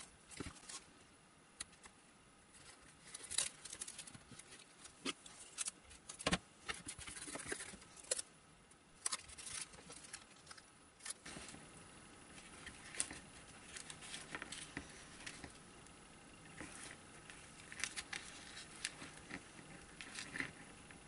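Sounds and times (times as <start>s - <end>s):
adhesive tape rustling and crinkling: 2.5s - 8.3s, 9.0s - 11.6s, 12.3s - 15.7s, 16.5s - 21.0s.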